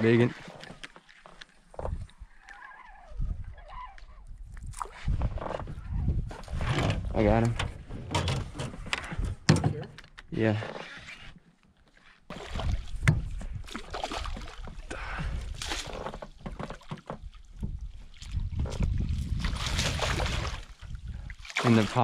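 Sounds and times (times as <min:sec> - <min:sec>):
fish thrashing and splashing: 0:12.3 - 0:14.8, 0:18.4 - 0:22.0
net swept through water: 0:19.4 - 0:20.8.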